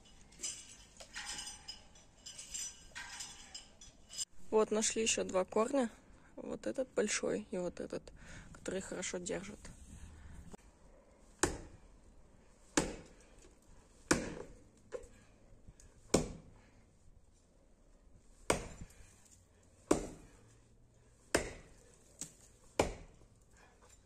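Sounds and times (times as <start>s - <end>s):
axe chopping roots: 11.4s - 11.8s, 12.7s - 13.3s, 14.1s - 15.1s, 16.1s - 16.5s, 18.5s - 19.0s, 19.8s - 20.4s, 21.3s - 23.2s.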